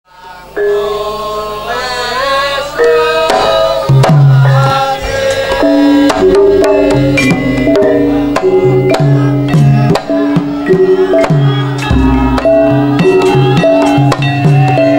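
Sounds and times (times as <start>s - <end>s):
gong-chime and metallophone notes: 2.8s - 14.9s
deep hand drum strokes: 3.3s - 14.9s.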